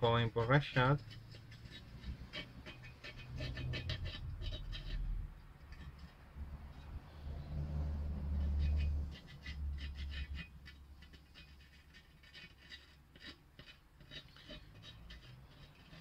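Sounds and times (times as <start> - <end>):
glue brush scratching: 0.0 - 16.0.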